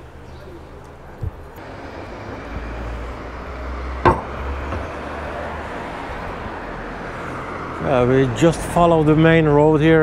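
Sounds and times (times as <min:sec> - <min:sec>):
car engine and road noise: 0:00.0 - 0:10.0
sharp knock: 0:04.0 - 0:04.8.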